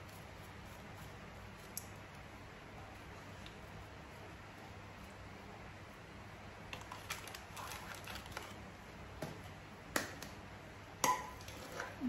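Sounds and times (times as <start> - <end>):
low room hum: 0.0 - 12.0
spice packet rustling: 6.7 - 8.6.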